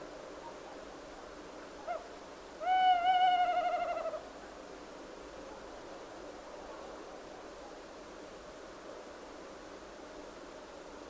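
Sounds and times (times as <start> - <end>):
faint steady hiss: 0.0 - 11.0
owl hooting: 1.8 - 4.2.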